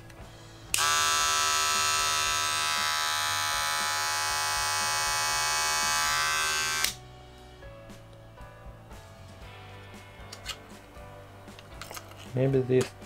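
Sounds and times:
hair clippers buzzing: 0.7 - 7.0.

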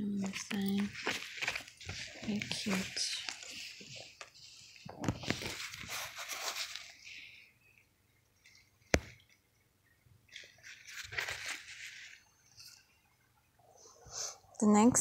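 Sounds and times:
fabric pouch rustling: 0.1 - 7.4, 10.3 - 12.8.

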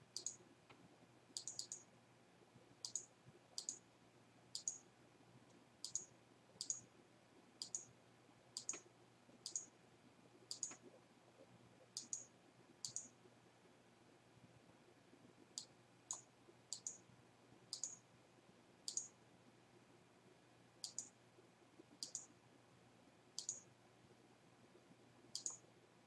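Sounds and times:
computer mouse button clicks: 2.8 - 3.8, 8.6 - 8.8.

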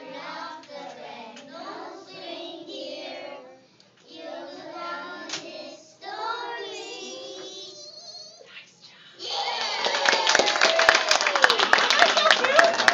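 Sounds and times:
children singing: 0.0 - 7.7.

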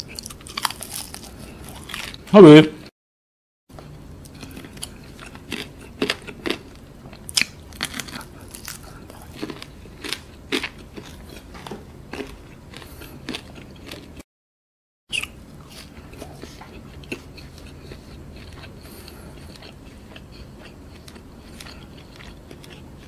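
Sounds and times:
crunching of crispy food: 0.0 - 2.3, 4.3 - 11.5, 12.1 - 14.2, 15.1 - 23.0
wet chewing mouth sounds: 15.1 - 23.0.

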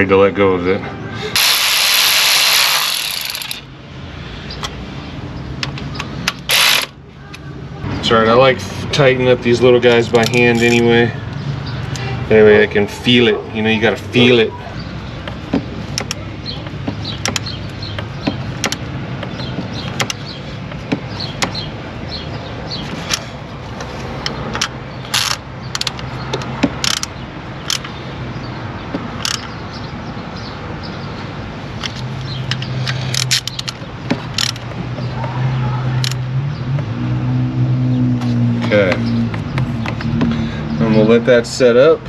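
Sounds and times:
hand tools clicking on metal: 31.8 - 34.7.

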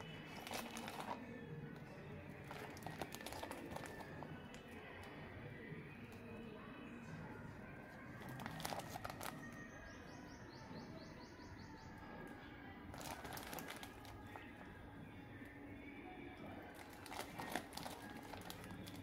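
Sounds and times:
plastic bag crinkling: 0.0 - 1.2, 2.4 - 4.7, 8.2 - 9.5, 12.9 - 14.7, 16.7 - 19.0.

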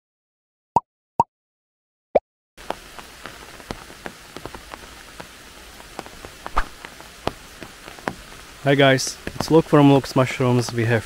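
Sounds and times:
raindrops landing close by: 2.6 - 11.0
steady rain hiss: 2.6 - 11.0.

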